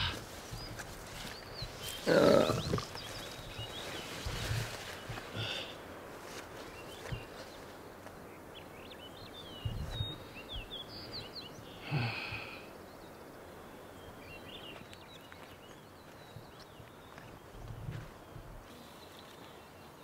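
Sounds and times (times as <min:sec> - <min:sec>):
small birds chirping: 0:00.0 - 0:20.0
soft low thumps: 0:09.6 - 0:10.7.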